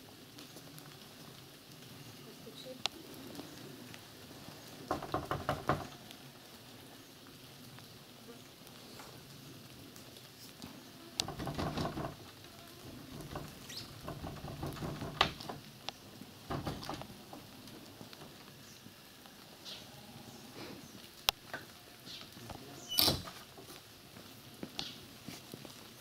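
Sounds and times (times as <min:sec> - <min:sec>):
sharp knocks: 0:04.9 - 0:05.9, 0:11.2 - 0:12.3, 0:13.1 - 0:15.6, 0:16.5 - 0:17.1
rustling and scraping: 0:10.4 - 0:18.9.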